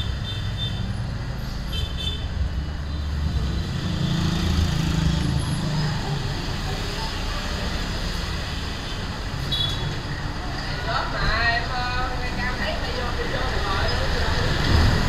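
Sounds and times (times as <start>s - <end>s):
street traffic noise: 0.0s - 15.0s
delivery truck engine rumble: 2.4s - 15.0s
motorbike passing: 3.1s - 8.5s.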